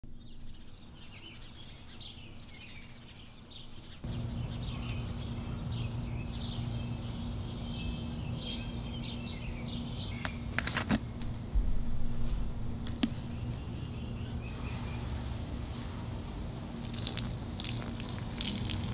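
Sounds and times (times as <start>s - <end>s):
small birds chirping: 0.1s - 11.5s, 13.0s - 15.6s, 16.4s - 18.9s
steady hum: 3.9s - 18.9s
low rumble: 11.2s - 16.8s.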